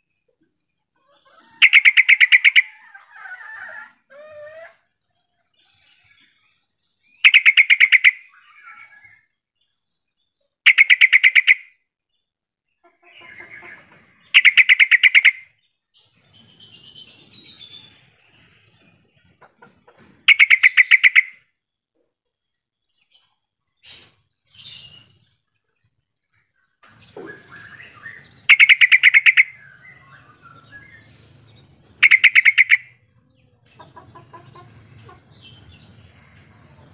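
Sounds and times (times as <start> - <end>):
bird calling in quick bursts: 1.6 - 2.7, 7.2 - 8.7, 10.6 - 11.7, 14.3 - 15.6, 20.2 - 21.4, 27.0 - 29.9, 32.0 - 33.0.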